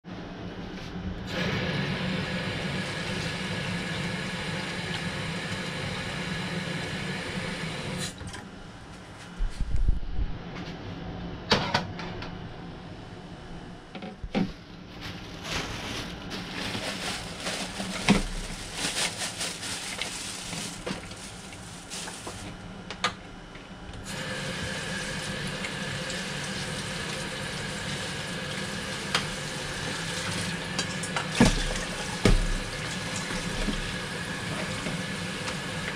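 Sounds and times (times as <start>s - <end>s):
plastic bag rustling: 14.8s - 22.7s.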